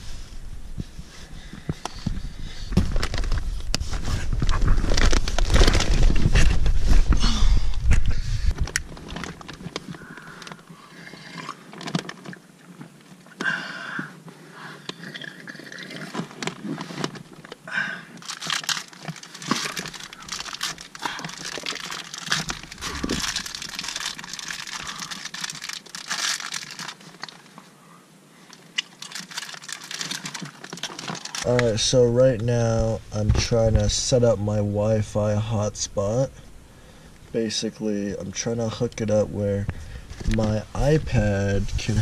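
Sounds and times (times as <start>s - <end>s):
small crunches and clicks: 1.6s - 13.5s, 14.8s - 27.7s, 28.5s - 31.9s
cardboard rustling: 1.7s - 7.2s, 18.2s - 27.5s, 28.8s - 33.9s
food wrapper crinkling: 2.5s - 7.3s, 8.0s - 10.6s, 18.2s - 27.5s, 28.5s - 31.9s.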